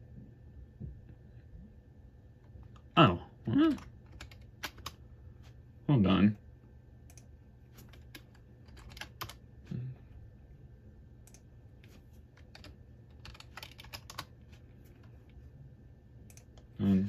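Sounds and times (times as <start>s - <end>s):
faint steady low hum: 0.0s - 17.0s
computer keyboard keystrokes: 3.7s - 5.0s, 7.0s - 9.4s, 11.2s - 11.5s, 12.3s - 14.4s, 16.3s - 16.7s.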